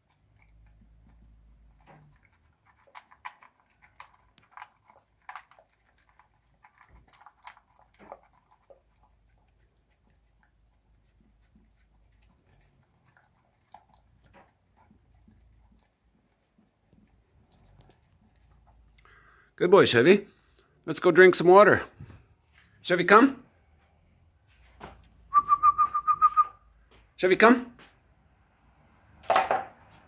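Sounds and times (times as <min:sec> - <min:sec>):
dog crunching dry kibble: 0:00.0 - 0:19.4.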